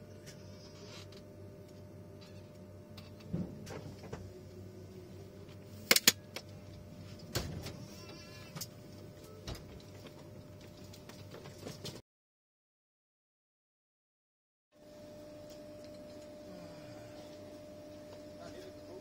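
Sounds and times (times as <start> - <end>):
train carriage hum: 0.0 - 12.0.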